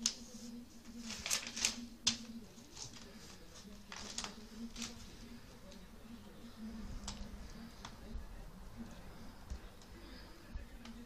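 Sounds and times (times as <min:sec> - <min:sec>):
notebook pages flipping: 0:00.0 - 0:08.1.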